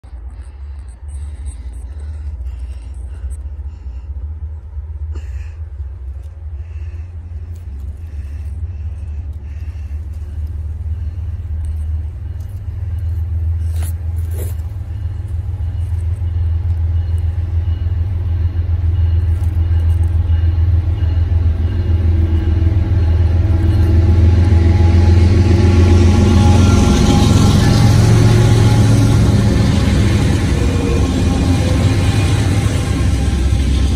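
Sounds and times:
diesel locomotive rumbling: 0:00.0 - 0:33.9.

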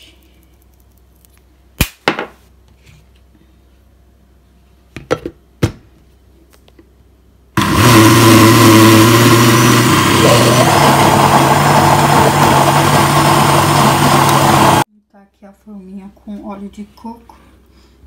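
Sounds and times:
blender motor running: 0:07.6 - 0:14.9.

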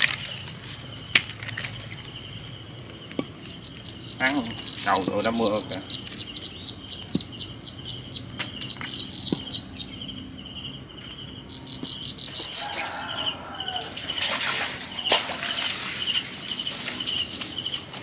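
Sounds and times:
rustling in brush and leaves: 0:00.0 - 0:06.4, 0:12.4 - 0:18.0
crickets chirping: 0:00.0 - 0:18.0.

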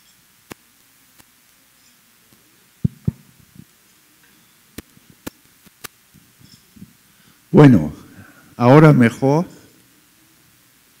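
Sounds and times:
sharp microphone clicks: 0:02.3 - 0:03.8, 0:04.7 - 0:07.0
microphone handling thumps: 0:02.8 - 0:03.7, 0:06.2 - 0:07.0.

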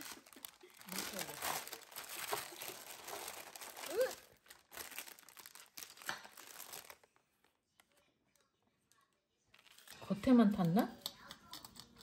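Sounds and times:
parchment paper crinkling: 0:00.0 - 0:12.0
person exclaiming: 0:03.9 - 0:04.2.

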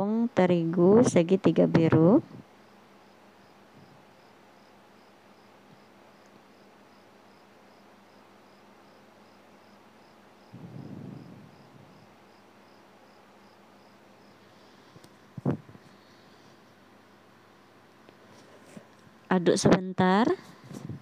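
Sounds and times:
cricket chirping: 0:02.2 - 0:18.3.

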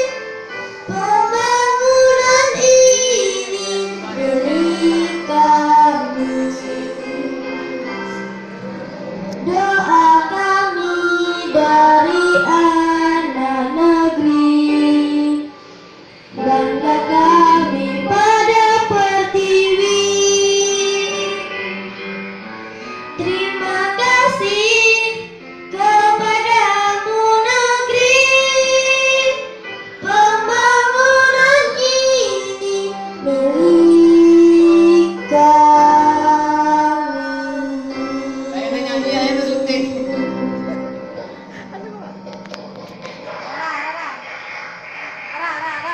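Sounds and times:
girl singing into microphone: 0:00.0 - 0:22.1, 0:23.1 - 0:41.0.

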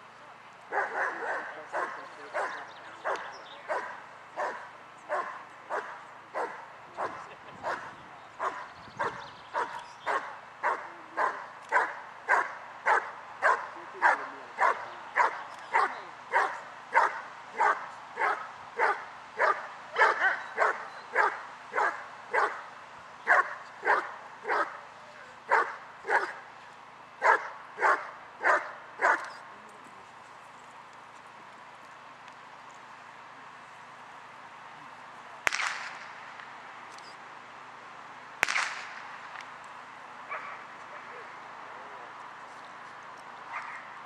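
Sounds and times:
dog barking: 0:00.7 - 0:22.6, 0:23.3 - 0:24.8, 0:25.5 - 0:26.4, 0:27.2 - 0:29.3, 0:40.3 - 0:41.2, 0:43.5 - 0:43.9.

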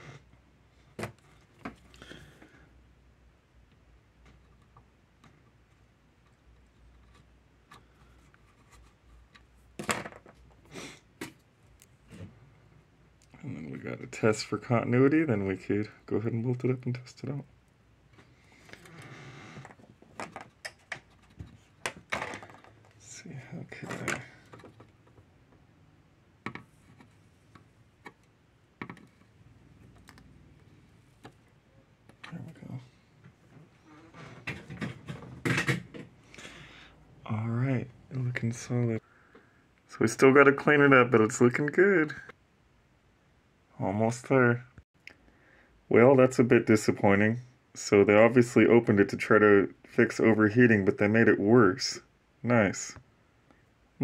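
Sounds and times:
knocks and rustles: 0:19.6 - 0:23.0, 0:23.8 - 0:25.6, 0:33.2 - 0:36.2.

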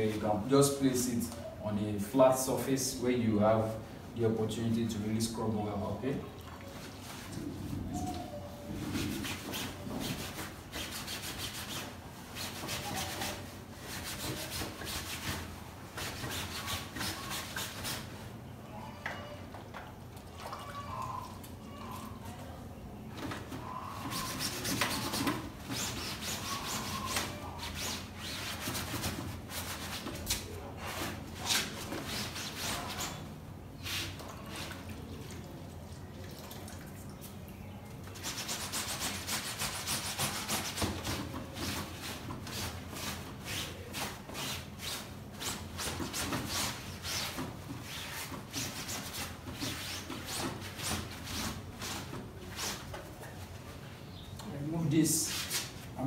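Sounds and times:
cloth scrubbing fabric: 0:06.8 - 0:18.2, 0:23.9 - 0:34.9, 0:38.2 - 0:53.0.

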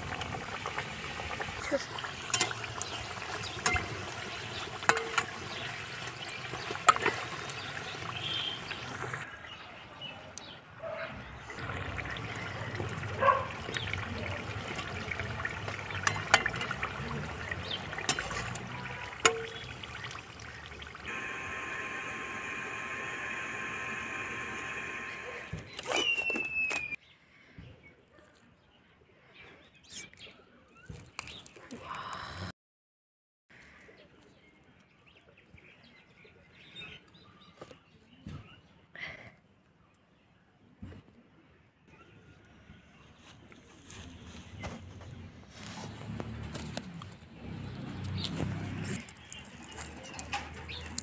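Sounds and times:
hot oil sizzling: 0:00.0 - 0:09.3, 0:11.4 - 0:25.8.

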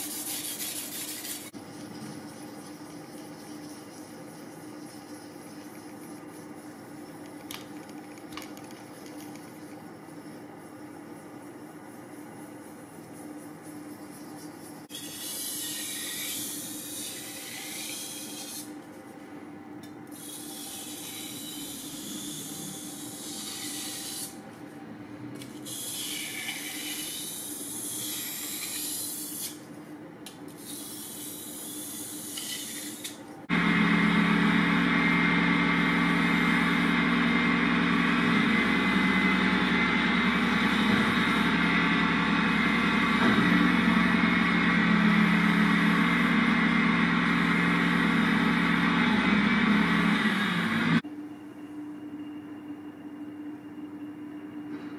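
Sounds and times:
sharpening machine motor hum: 0:20.1 - 0:24.4, 0:30.6 - 0:51.0.

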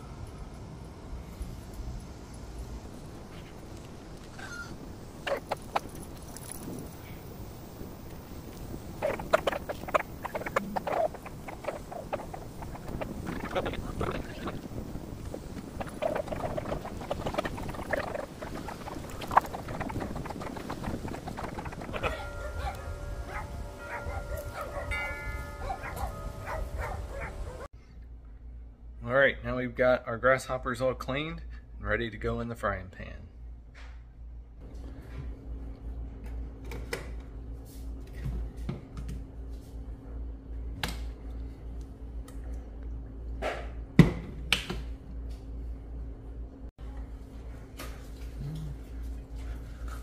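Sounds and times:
steady low hum: 0:00.0 - 0:50.0
crinkles clicks and scratches: 0:08.5 - 0:24.9.

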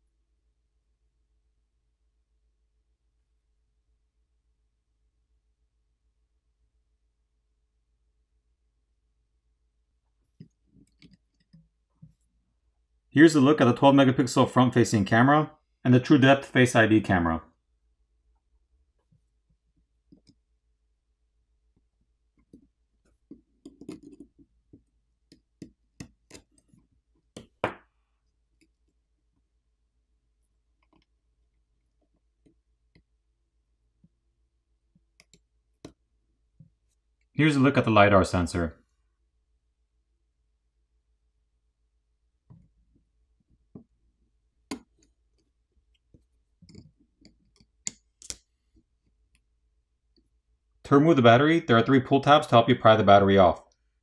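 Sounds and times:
faint clicks of small parts: 0:44.7 - 0:49.5.

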